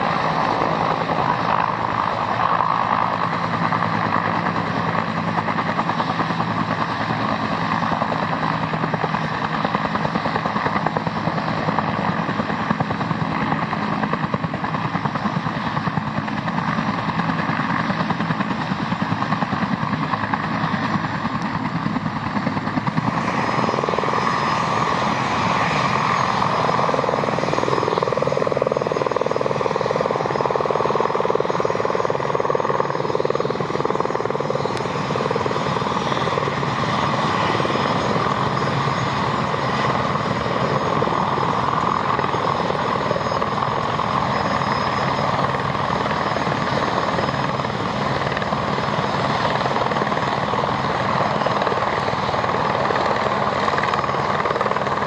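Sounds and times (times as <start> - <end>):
helicopter rotor and turbine: 0.0 - 55.0.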